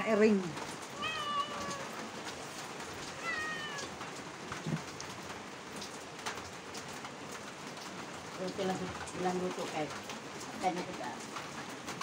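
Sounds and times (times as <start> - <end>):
cat meowing: 0.9 - 2.1, 3.1 - 4.0.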